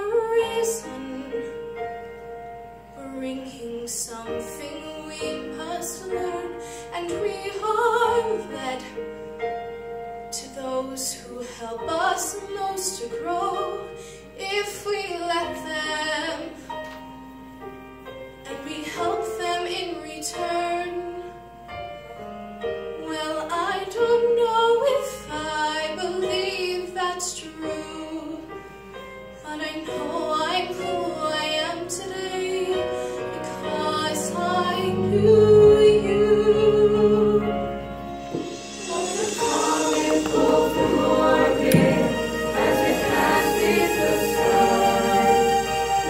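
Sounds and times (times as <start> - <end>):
musical accompaniment: 0.0 - 46.0
choir singing: 29.9 - 46.0.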